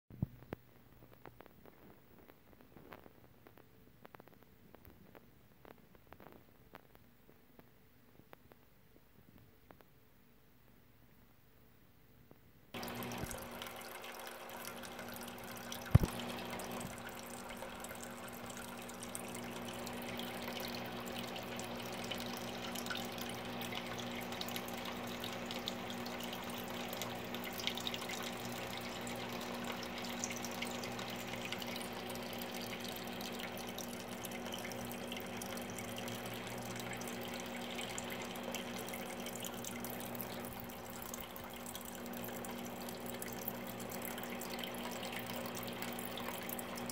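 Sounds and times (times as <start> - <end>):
low steady hum: 0.1 - 46.9
water trickling and dripping: 12.8 - 46.9.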